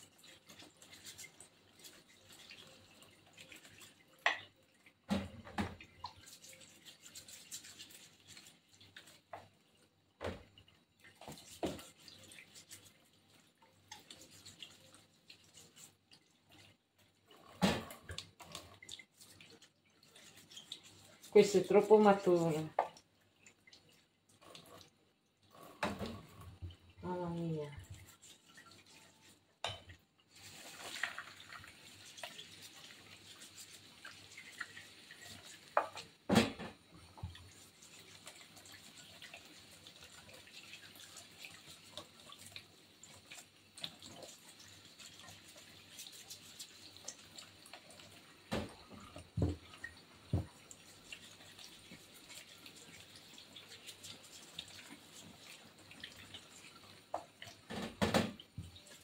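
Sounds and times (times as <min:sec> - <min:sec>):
tap water running into sink: 0:00.0 - 0:59.0
water splashing and dripping: 0:00.0 - 0:59.0
knocks in sink: 0:35.8 - 0:36.8, 0:50.3 - 0:50.6, 0:57.7 - 0:58.7.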